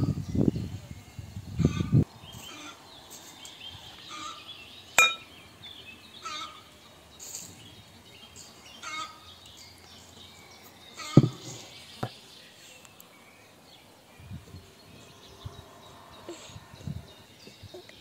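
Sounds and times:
birds calling: 1.5s - 18.0s
glass clink: 5.0s - 5.3s.

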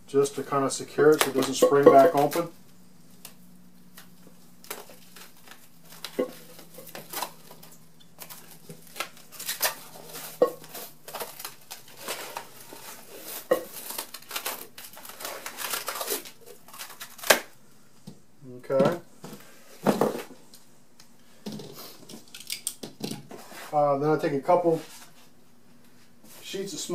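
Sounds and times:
plastic cling wrap crinkling: 0.7s - 17.6s.

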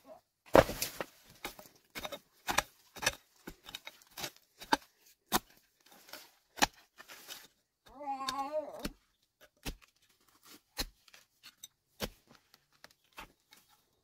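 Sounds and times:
digging tool chopping into soil: 0.5s - 7.5s, 8.3s - 11.2s.

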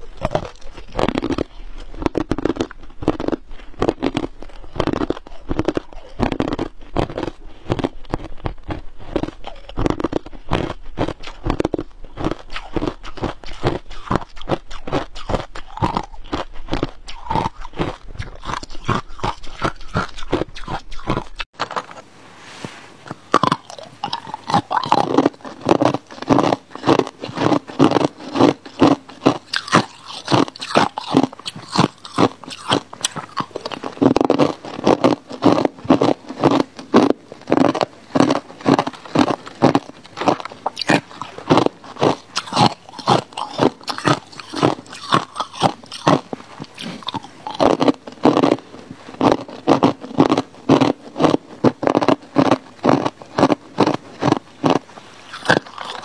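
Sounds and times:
ice crunching in mouth: 0.0s - 21.9s, 23.1s - 56.0s.

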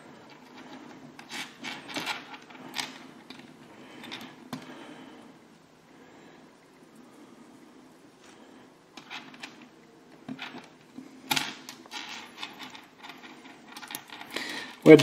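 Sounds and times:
plastic pieces rubbing and scraping: 0.3s - 4.7s, 9.0s - 15.0s.

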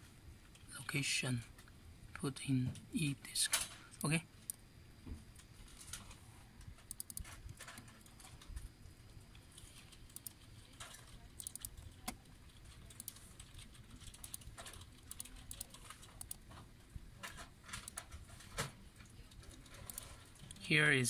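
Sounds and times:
faint room hum: 0.0s - 21.0s
mouse and keyboard clicks: 6.8s - 8.7s, 9.3s - 16.6s, 17.2s - 18.7s, 19.4s - 20.6s.

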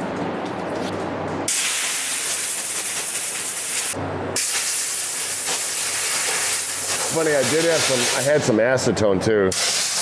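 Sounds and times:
compressed air blow gun hissing: 1.5s - 8.3s, 9.5s - 10.0s.

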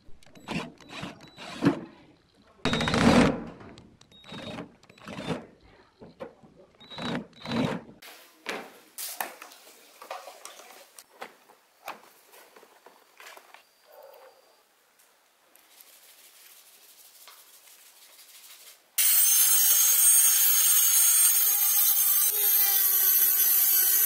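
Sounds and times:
power drill driving screws: 0.4s - 1.8s, 2.7s - 3.5s, 4.1s - 5.5s, 6.8s - 7.9s, 19.0s - 24.0s.

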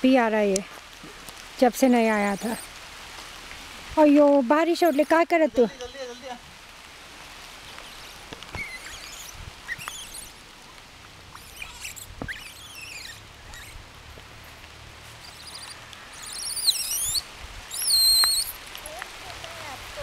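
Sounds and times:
faint steady hiss: 0.0s - 20.0s
monkey infants squealing: 7.7s - 10.4s, 11.3s - 13.8s, 15.2s - 18.6s.

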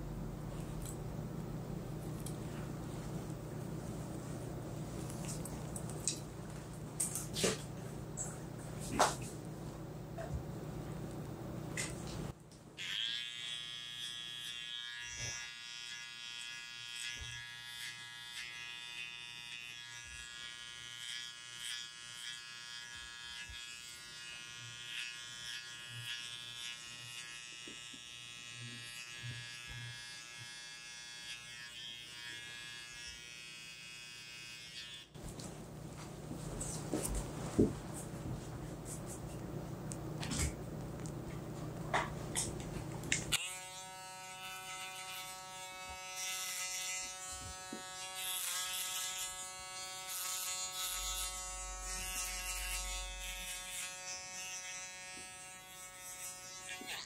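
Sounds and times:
electric trimmer buzzing: 12.8s - 35.2s, 42.4s - 57.0s.

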